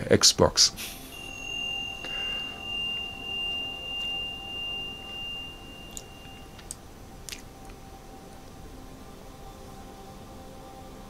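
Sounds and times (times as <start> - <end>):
high pure sustained tone: 0.7 - 11.0.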